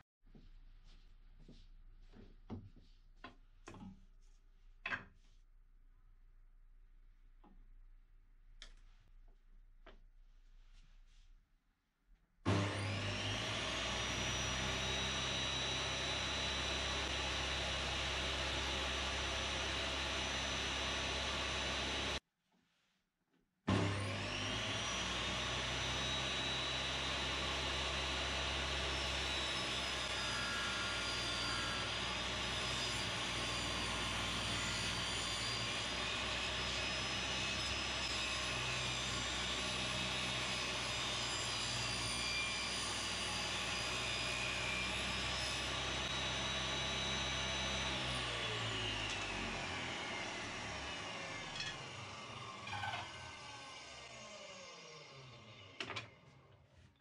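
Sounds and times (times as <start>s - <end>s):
table saw whining: 12.5s - 22.2s, 23.7s - 56.7s.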